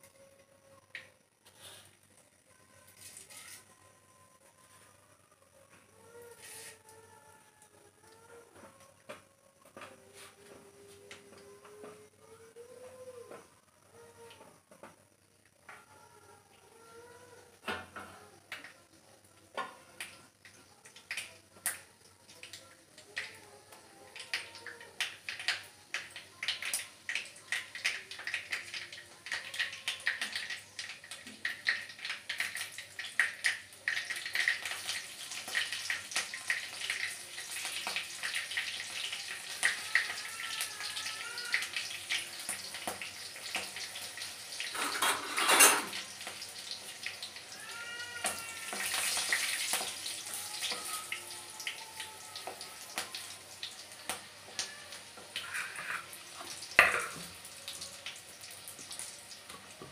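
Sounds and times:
spices sizzling in hot oil: 0:19.5 - 0:59.9.

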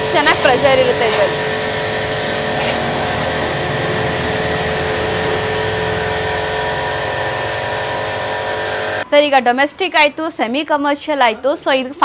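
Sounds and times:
high-pressure water jet hissing: 0:00.0 - 0:09.0
pressure washer motor hum: 0:00.0 - 0:09.0.

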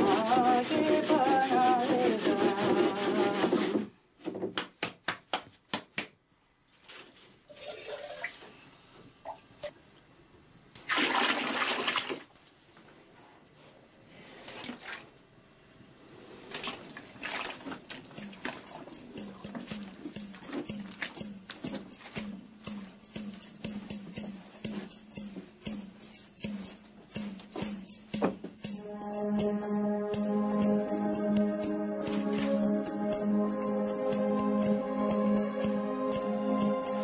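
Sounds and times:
water sloshing in bucket: 0:16.5 - 0:18.8, 0:20.8 - 0:21.2.

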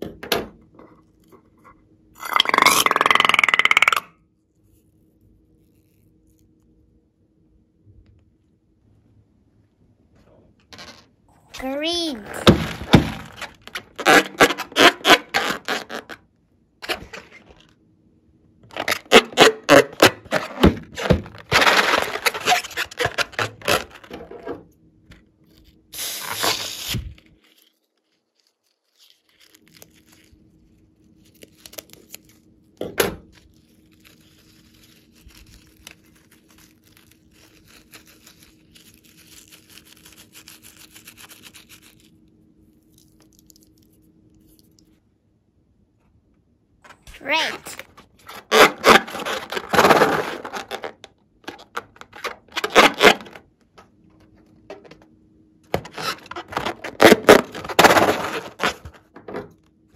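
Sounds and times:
slime balloon squeaks and crackles: 0:02.2 - 0:06.5, 0:11.5 - 0:17.7, 0:18.7 - 0:24.4, 0:25.4 - 0:32.7, 0:33.3 - 0:44.8, 0:47.1 - 0:53.4, 0:55.8 - 0:59.1.

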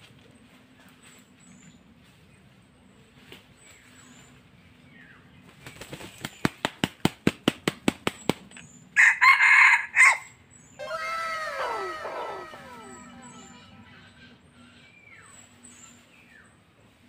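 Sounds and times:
rooster crowing: 0:09.0 - 0:13.9
overlapping falling tones: 0:10.8 - 0:14.2.

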